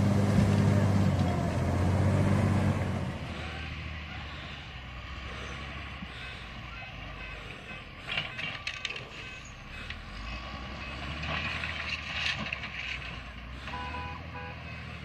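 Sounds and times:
heavy vehicle engine running: 0.0 - 15.0
short beeps: 7.1 - 11.0.

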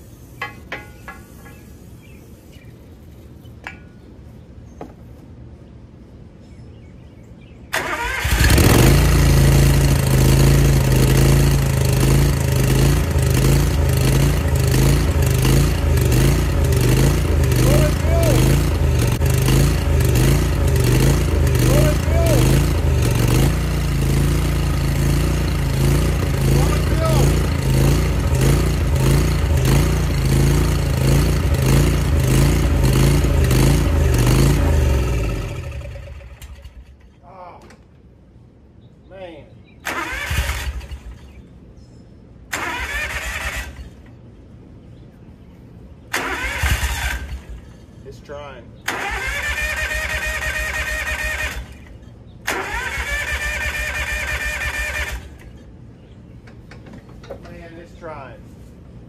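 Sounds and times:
engine cranking with starter: 7.7 - 9.8, 33.4 - 37.1, 39.8 - 41.3, 42.5 - 44.1, 46.1 - 47.7, 48.8 - 55.7
mower engine running: 7.8 - 37.0, 39.9 - 41.3, 42.6 - 44.2, 46.2 - 47.8, 48.9 - 55.7.

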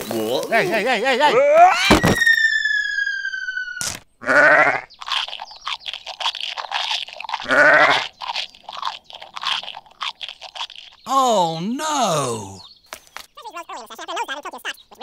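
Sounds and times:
sheep bleating: 4.2 - 4.8, 7.4 - 8.0
crunchy chewing: 4.3 - 11.1.

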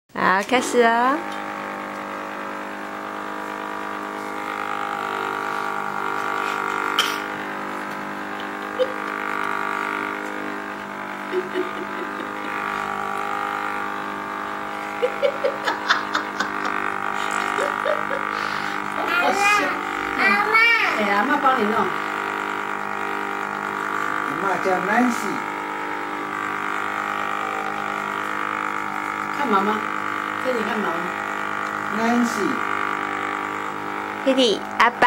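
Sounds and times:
electric massager buzzing: 0.1 - 35.0.

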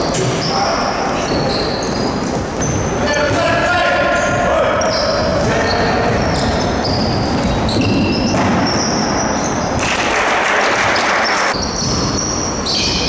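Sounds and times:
sneakers squeaking: 0.0 - 13.0.

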